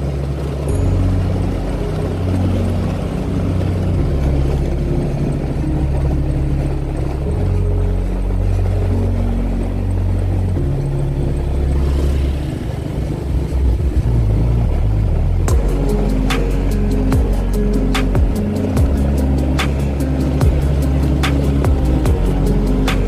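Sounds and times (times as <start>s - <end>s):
heavy low rumble: 0.0s - 23.0s
motorbike engine running: 10.0s - 23.0s.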